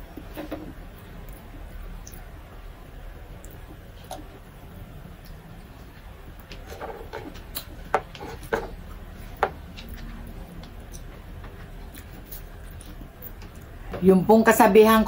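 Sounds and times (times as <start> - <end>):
chewing and mouth smacks: 9.3 - 13.7.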